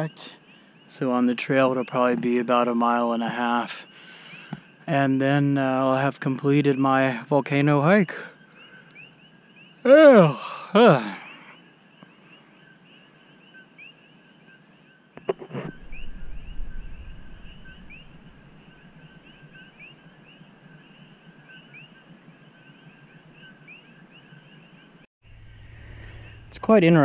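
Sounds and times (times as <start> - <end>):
frogs chirping: 0.0 - 25.1
low rushing noise: 15.7 - 19.6, 25.2 - 27.0.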